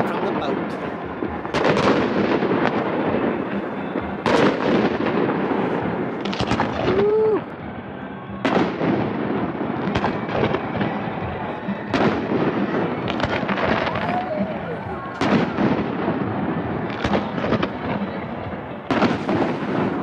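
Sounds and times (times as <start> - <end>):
fireworks exploding with booms: 0.0 - 20.0.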